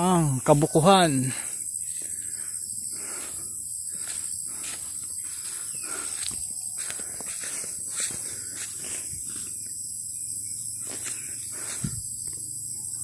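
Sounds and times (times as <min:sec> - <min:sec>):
insects chorus: 0:00.0 - 0:13.0
soft footsteps: 0:03.2 - 0:09.6.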